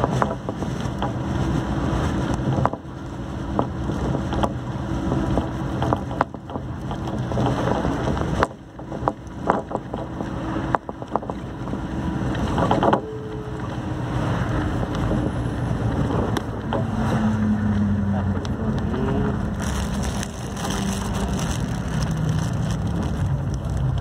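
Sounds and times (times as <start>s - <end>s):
tyre and wind rumble: 0.0s - 24.0s
vehicle engine hum: 0.0s - 24.0s
rattles and knocks: 5.3s - 11.6s.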